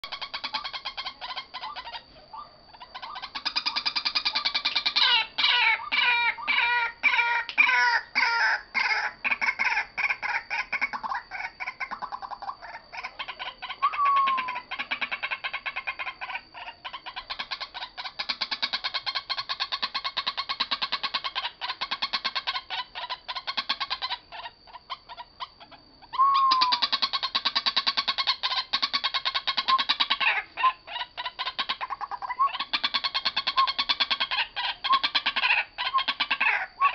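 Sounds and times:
waterhen calling harshly: 0:02.8 - 0:11.8, 0:26.2 - 0:36.9.

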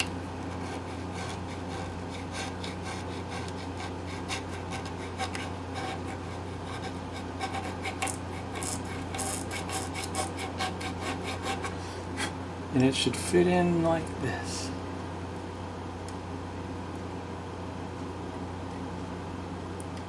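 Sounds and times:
metal file rasping on wood: 0:00.5 - 0:12.4.

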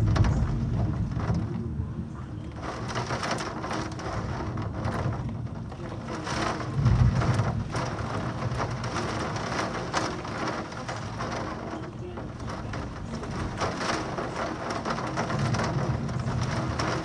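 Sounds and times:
heavy rain pouring: 0:00.0 - 0:17.0
low rumble of thunder: 0:00.0 - 0:17.0.

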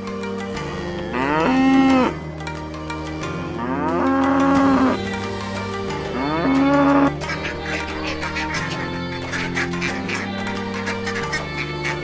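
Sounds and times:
background music: 0:00.0 - 0:12.0
cows mooing: 0:00.6 - 0:02.2, 0:03.4 - 0:05.1, 0:06.0 - 0:07.2.

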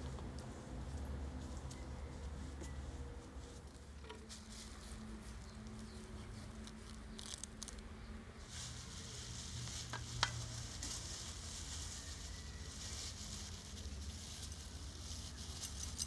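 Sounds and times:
plastic bag crinkling: 0:06.5 - 0:07.8, 0:08.4 - 0:16.0.

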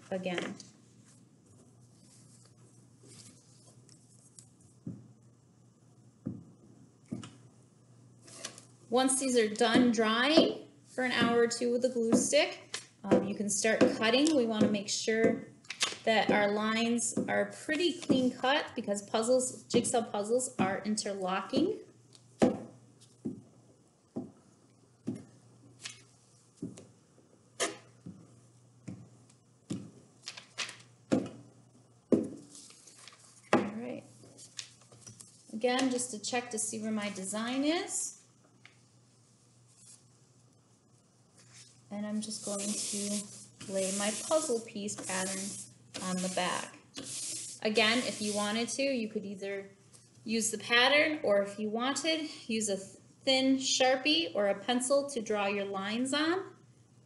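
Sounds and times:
faint steady hum: 0:00.0 - 0:57.0
glue stick scrubbing on paper: 0:42.2 - 0:48.7.

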